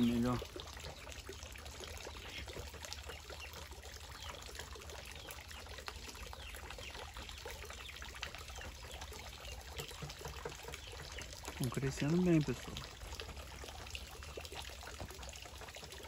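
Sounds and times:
water from hose splashing into pond: 0.0 - 16.0.

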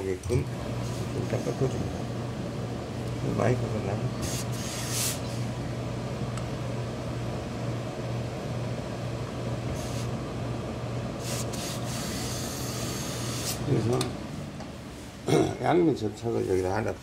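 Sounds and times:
low equipment hum: 0.0 - 17.0
steam iron hissing: 4.2 - 5.5, 9.7 - 10.2, 11.2 - 13.7.

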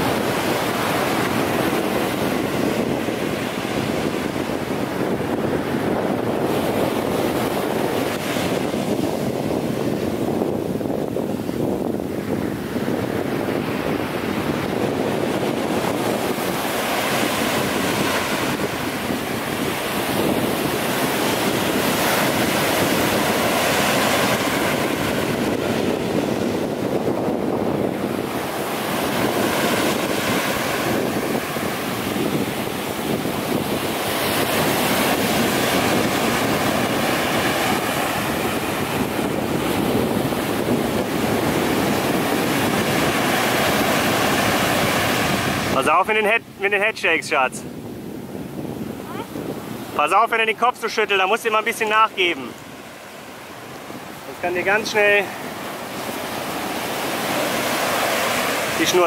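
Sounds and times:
ocean surf breaking: 0.0 - 59.0
wind buffeting microphone: 0.0 - 59.0.

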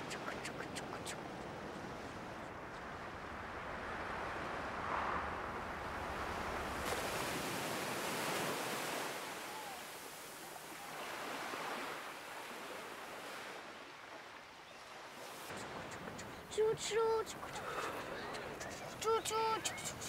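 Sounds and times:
sea waves washing onto beach: 0.0 - 20.0.

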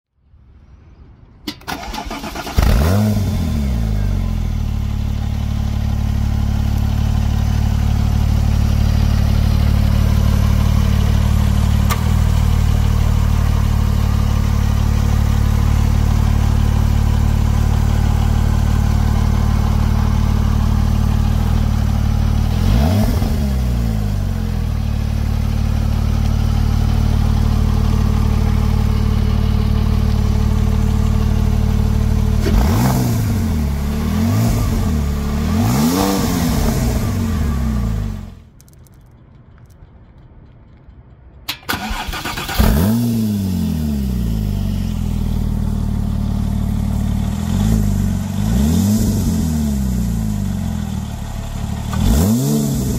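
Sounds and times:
car engine starting and idling: 1.4 - 52.9
starter clicks: 38.5 - 42.5.

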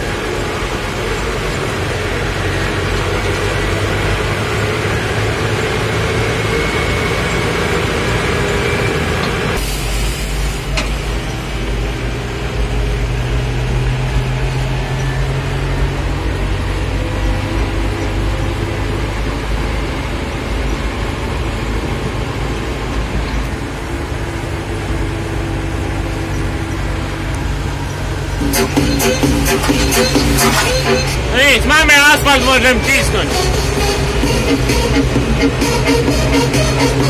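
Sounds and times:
tractor diesel engine drone: 0.0 - 37.0
rig rumbling on gravel: 13.2 - 33.3.

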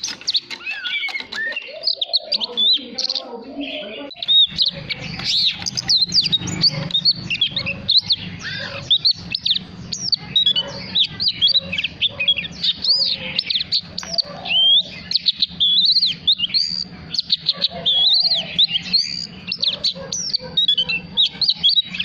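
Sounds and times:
bird singing whistled notes: 0.0 - 22.0.

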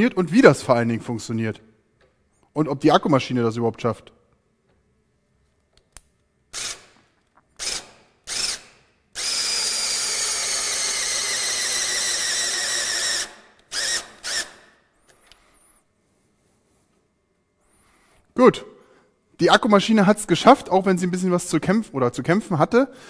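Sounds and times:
cordless drill running: 6.5 - 7.0, 7.6 - 15.4.

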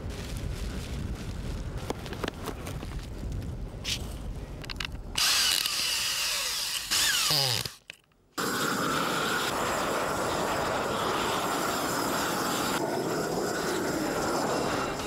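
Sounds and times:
gas torch rushing: 8.4 - 15.0.

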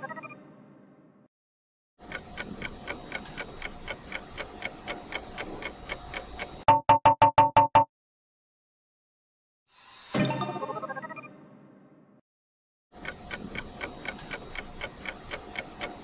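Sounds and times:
clock ticking: 2.0 - 7.8, 13.0 - 16.0.

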